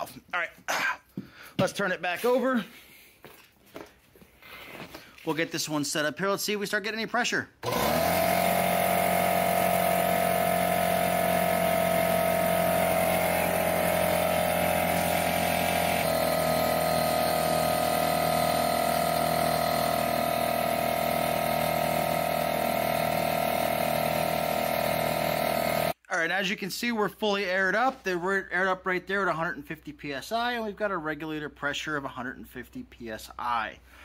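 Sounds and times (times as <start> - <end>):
air compressor running: 7.6 - 26.0.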